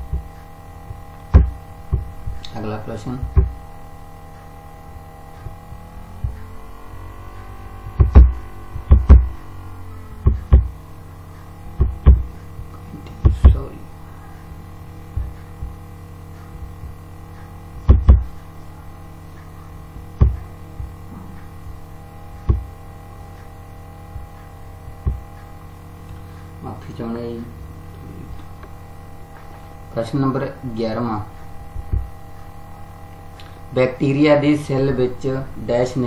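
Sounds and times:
sharp low thumps and clicks: 0.0s - 26.6s, 31.3s - 33.4s
electrical mains hum: 0.0s - 36.0s.

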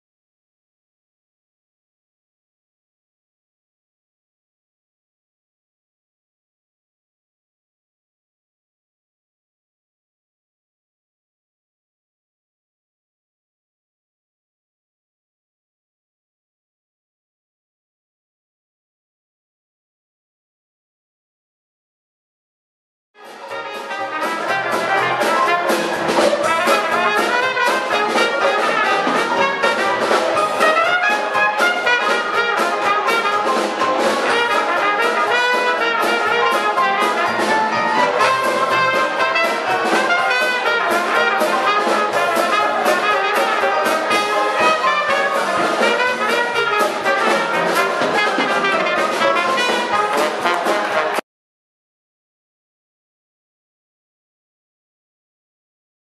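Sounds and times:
jazz band playing: 23.2s - 51.2s.

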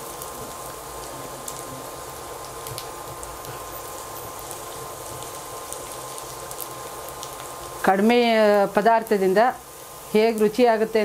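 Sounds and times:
garlic sizzling in hot oil: 0.0s - 11.0s
small pops and crackles: 2.4s - 3.6s.

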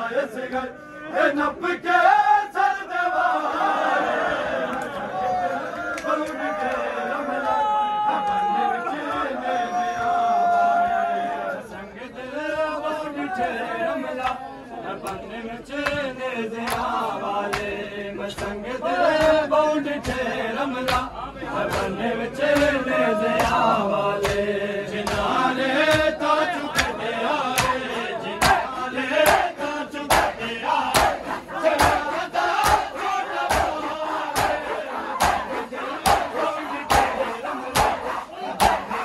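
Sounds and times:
crowd joining chant: 0.0s - 39.0s
men chanting a lament: 0.0s - 39.0s
hands slapping chests: 16.6s - 17.8s, 22.5s - 22.8s, 23.4s - 23.6s, 24.2s - 29.5s, 30.1s - 39.0s.

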